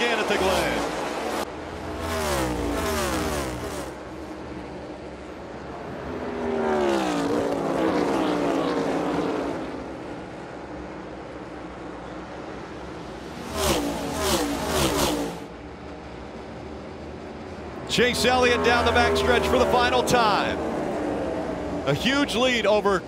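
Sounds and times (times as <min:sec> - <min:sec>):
race car engines passing by: 0:00.0 - 0:23.0.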